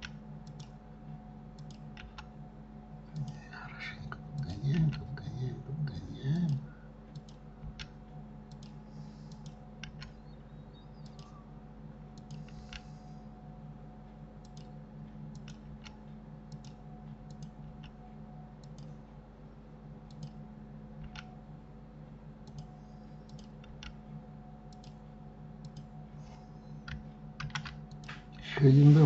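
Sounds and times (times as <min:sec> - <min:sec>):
low electrical hum: 0:00.0 - 0:29.0
mouse and keyboard clicks: 0:08.5 - 0:10.2, 0:11.0 - 0:11.4.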